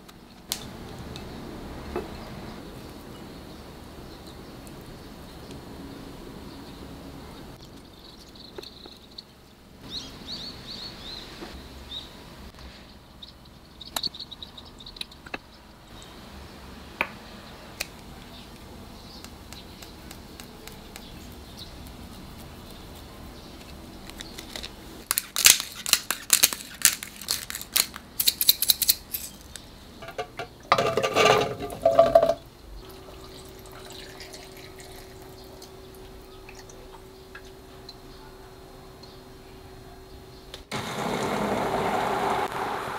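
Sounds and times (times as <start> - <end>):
crackly scrapes and clicks: 19.2 - 29.7
faint steady hum: 29.4 - 40.8.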